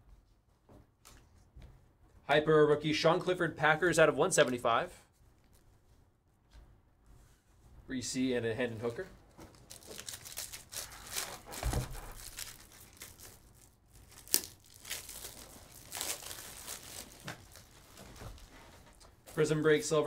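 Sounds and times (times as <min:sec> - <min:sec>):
foil wrapper crinkling and tearing: 0:09.5 - 0:19.6.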